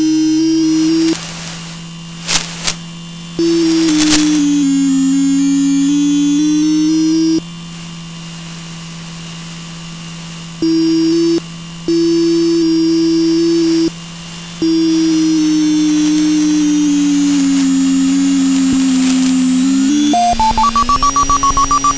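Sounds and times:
steady low electronic hum: 0:00.0 - 0:21.9
sliding electronic tone: 0:00.4 - 0:02.8, 0:03.4 - 0:07.4, 0:14.6 - 0:21.9
higher stepping electronic tones: 0:03.4 - 0:07.4, 0:14.6 - 0:21.9.

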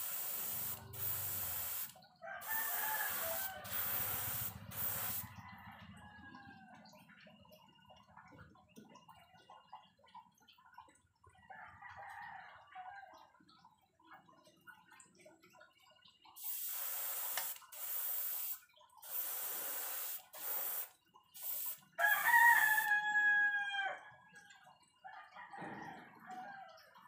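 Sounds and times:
airbrush spraying hiss: 0:00.0 - 0:05.2, 0:16.4 - 0:21.8
rooster crowing: 0:02.2 - 0:06.8, 0:22.0 - 0:24.2, 0:25.2 - 0:27.0.

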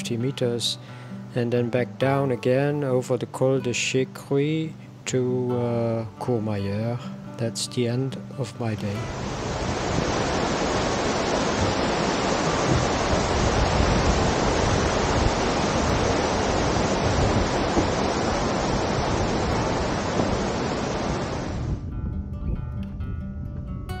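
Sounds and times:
fast-flowing water rushing: 0:09.0 - 0:21.7.

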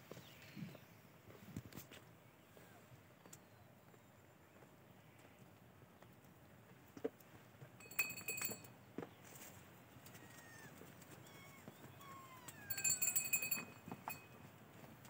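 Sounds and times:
small metal bell jingling: 0:07.8 - 0:08.7, 0:12.2 - 0:14.5.

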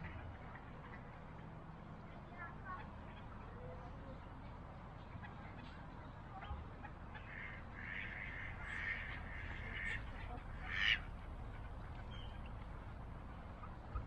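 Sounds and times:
ducks quacking: 0:06.3 - 0:12.5.

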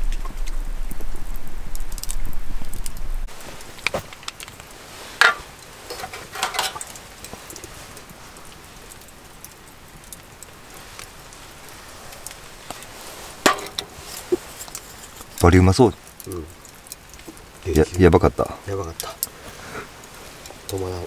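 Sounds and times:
faint steady hiss: 0:00.0 - 0:21.0
shaker rattling over metal bowl: 0:05.2 - 0:07.0.

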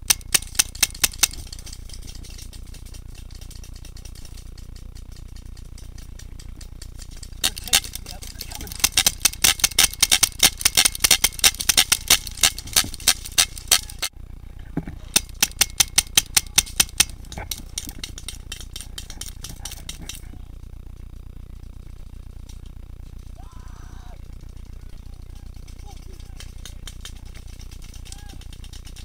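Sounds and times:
paintball marker firing rapidly: 0:00.0 - 0:14.1, 0:15.1 - 0:20.4.

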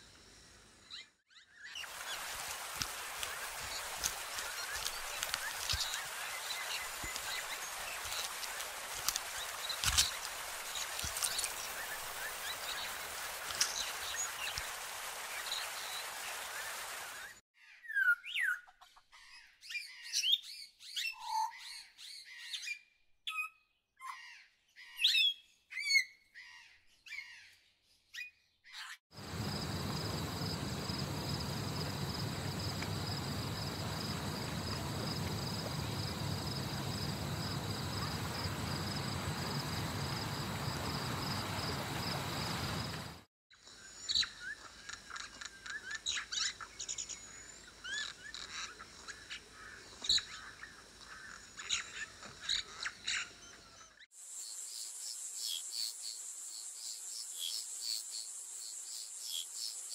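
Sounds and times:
steady hiss: 0:01.8 - 0:17.2, 0:29.2 - 0:43.3.

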